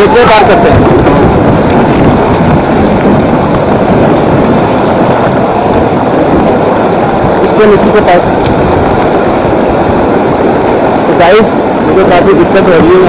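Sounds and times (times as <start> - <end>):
river water rushing: 0.0 - 13.0.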